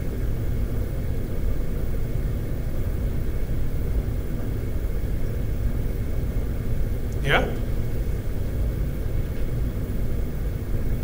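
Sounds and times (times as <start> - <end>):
low room rumble: 0.0 - 11.0.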